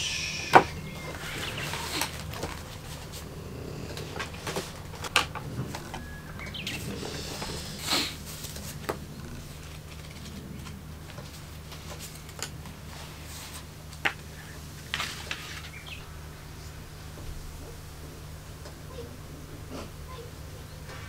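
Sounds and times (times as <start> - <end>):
steady low hum: 0.0 - 21.0
book pages rustling: 1.1 - 3.3, 3.9 - 16.0.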